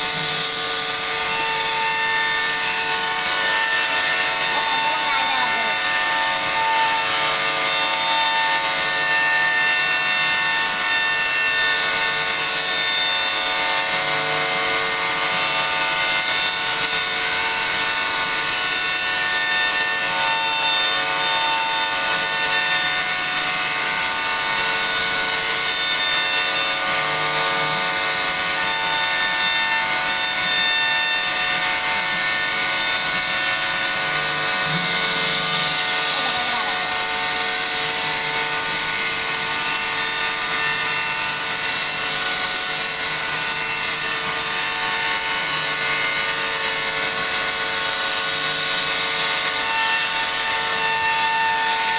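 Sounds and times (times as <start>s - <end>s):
hiss of wood cutting: 0.0s - 8.3s, 31.8s - 44.3s
router spindle whine: 0.0s - 51.9s.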